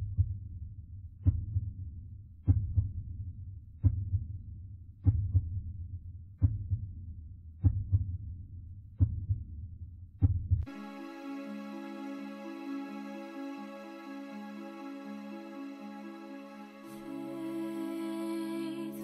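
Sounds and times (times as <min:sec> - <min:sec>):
heartbeat double thump: 0:01.2 - 0:01.7, 0:02.5 - 0:02.9, 0:05.0 - 0:05.6, 0:06.4 - 0:06.9, 0:07.6 - 0:08.2, 0:09.0 - 0:09.5, 0:10.2 - 0:10.7.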